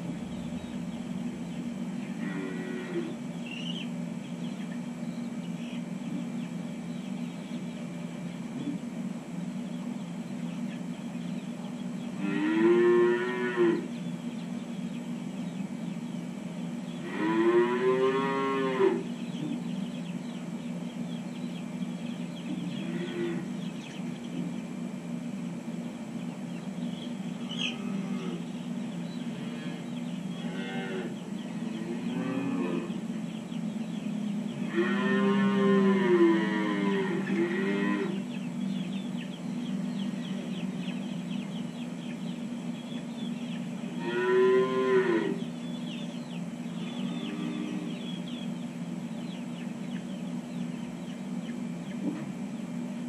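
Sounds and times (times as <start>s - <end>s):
steady low hum: 0.0s - 53.0s
calves mooing: 2.0s - 3.2s, 12.2s - 13.9s, 17.0s - 19.1s, 22.7s - 23.6s, 27.6s - 28.5s, 29.2s - 33.1s, 34.6s - 38.2s, 43.8s - 45.5s, 46.8s - 48.1s.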